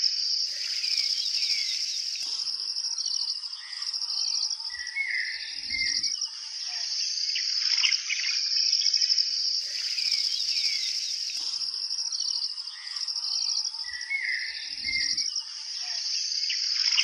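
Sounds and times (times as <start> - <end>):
insects trilling: 0.1 - 17.0
birds chirping: 0.4 - 6.0, 9.6 - 15.2.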